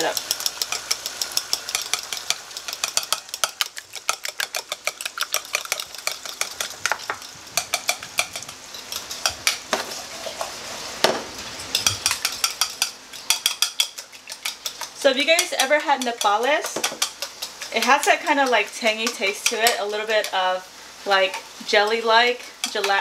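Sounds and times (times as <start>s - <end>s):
vegetables sizzling in oil: 0.0s - 23.0s
utensil clicking against bowl: 0.1s - 8.0s.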